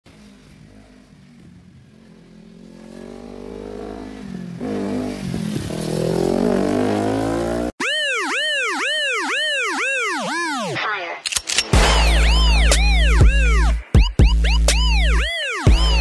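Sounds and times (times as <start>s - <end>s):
motorcycle engine revving: 0.1s - 7.8s.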